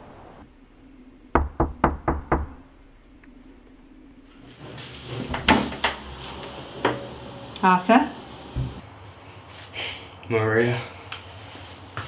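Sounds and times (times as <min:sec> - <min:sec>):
knocks on a door: 0:01.4 - 0:02.5.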